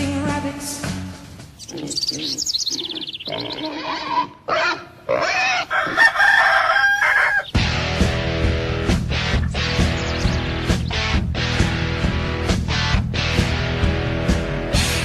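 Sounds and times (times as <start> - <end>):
long pitched animal calls: 1.6 - 7.6
farm animal calls: 1.6 - 7.8, 9.1 - 11.2
falling twitter of chirps: 9.6 - 10.6.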